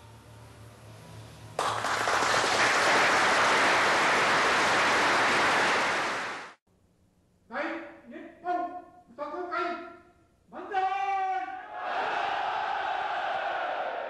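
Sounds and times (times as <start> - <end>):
crowd applauding: 1.6 - 6.6.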